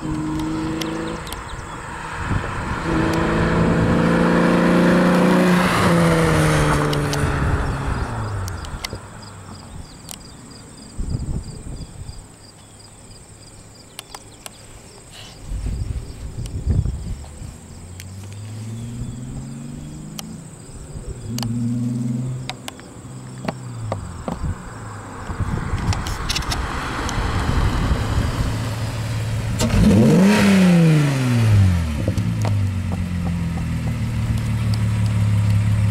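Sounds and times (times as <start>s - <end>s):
insects chirping: 0.0s - 30.2s
distant car engine hum: 0.0s - 35.9s
engines idling: 31.3s - 35.9s.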